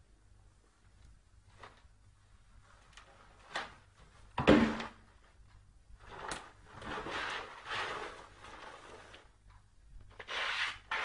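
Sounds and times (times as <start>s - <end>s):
box scraping and rustling: 6.8s - 9.2s.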